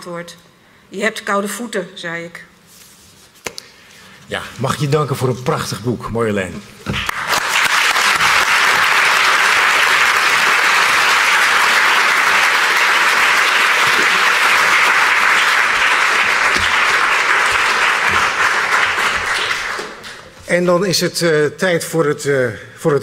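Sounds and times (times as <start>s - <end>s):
audience applause: 7.0s - 20.4s.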